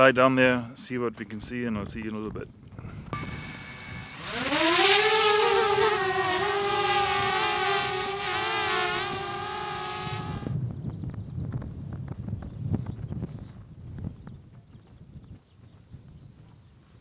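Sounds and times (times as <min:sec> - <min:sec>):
drone propellers buzzing: 0:02.8 - 0:10.6.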